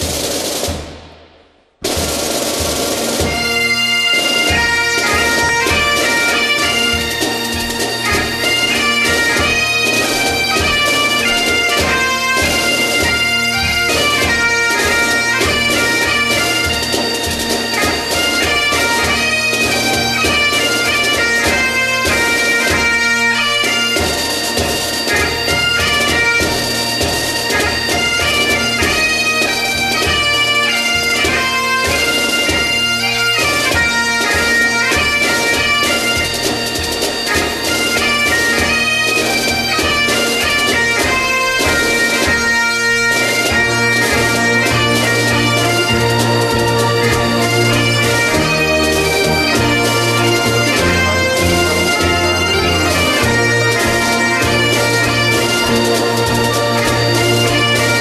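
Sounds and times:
drum beat: 0:00.0 - 0:03.6
bagpipe melody with drones: 0:03.2 - 0:58.0.

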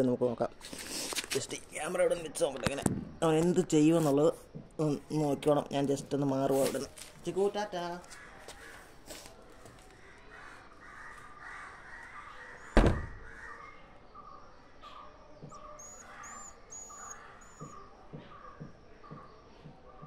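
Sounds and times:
birds calling with harsh notes: 0:09.9 - 0:20.0
sharp loud knock: 0:12.8 - 0:13.2.

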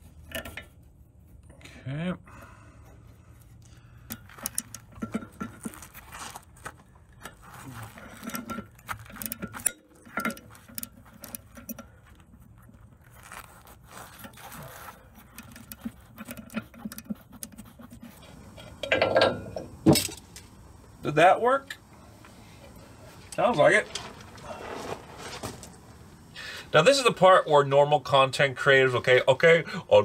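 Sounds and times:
metal scraping: 0:03.0 - 0:20.5, 0:22.6 - 0:26.2.

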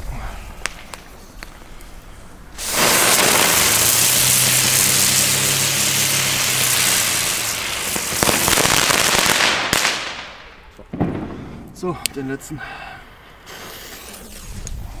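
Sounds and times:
firework crackles: 0:00.0 - 0:11.5
low firework hum: 0:00.0 - 0:15.0
firework rushing hiss: 0:02.5 - 0:11.4, 0:13.4 - 0:14.8.

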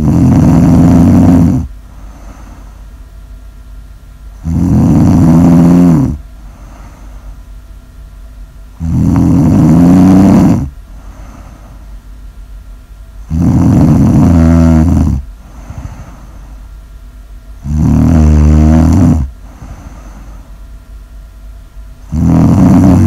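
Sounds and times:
person snoring: 0:00.0 - 0:02.8, 0:04.4 - 0:07.2, 0:08.8 - 0:11.8, 0:13.2 - 0:16.5, 0:17.6 - 0:20.5, 0:22.0 - 0:23.0.

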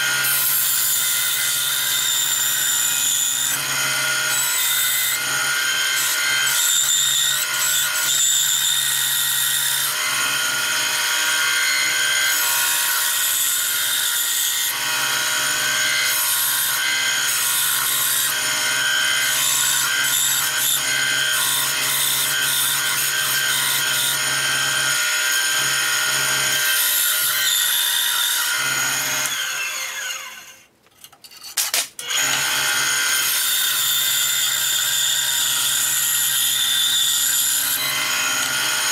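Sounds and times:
band saw cutting wood: 0:00.0 - 0:30.6, 0:31.6 - 0:38.9.

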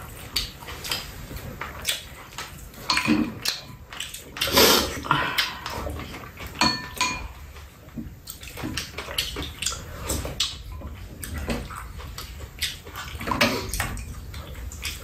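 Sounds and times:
spoons and chopsticks clinking on bowls: 0:02.8 - 0:03.9, 0:06.6 - 0:07.4.

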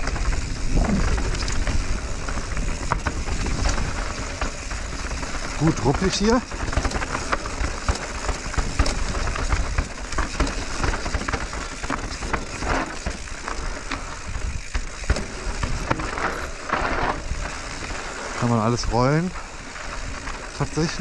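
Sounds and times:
bike rattling: 0:00.0 - 0:21.0
bike tyres on loose gravel: 0:00.0 - 0:21.0.

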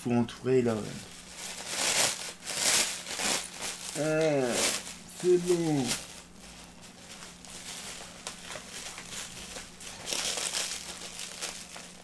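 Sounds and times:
plastic bag crinkling: 0:00.7 - 0:12.0.

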